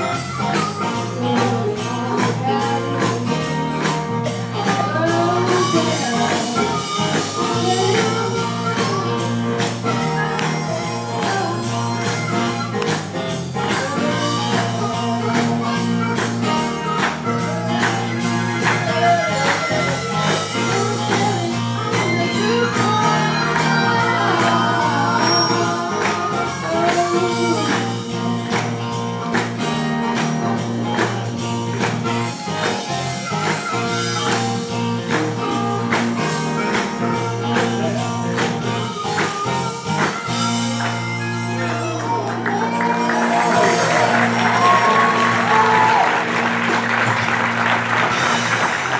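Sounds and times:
band accompaniment with steady beat: 0.0s - 48.9s
vocal trio singing in harmony: 22.5s - 27.7s.

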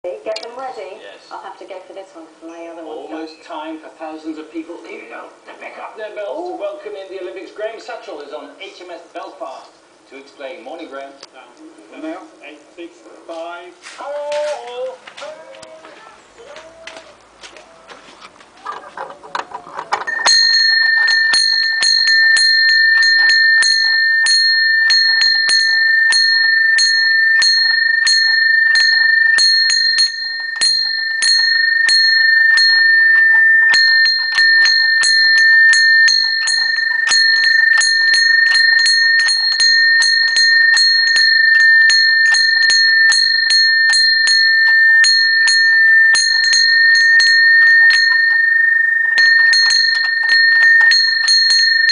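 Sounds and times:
iron wall bell ringing rapidly: 20.0s - 51.9s.

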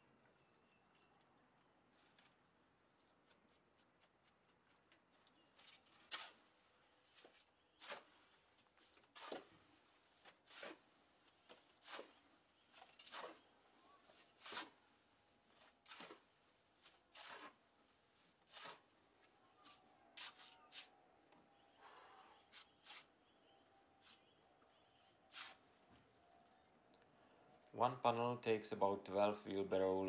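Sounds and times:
shovel scraping wet concrete: 5.7s - 6.5s, 7.8s - 8.2s, 8.9s - 9.6s, 10.2s - 14.8s, 15.5s - 17.6s, 18.2s - 18.9s, 19.6s - 20.9s, 25.3s - 25.7s.

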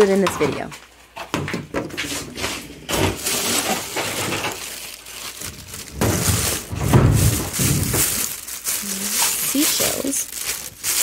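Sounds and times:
plastic bag rustling: 1.9s - 11.0s
small hard items clinking: 2.9s - 11.0s.

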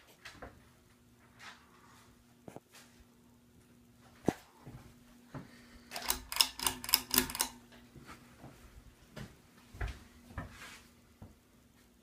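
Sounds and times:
ceiling fan hum: 0.0s - 12.0s
sharp clicks: 5.9s - 7.6s.

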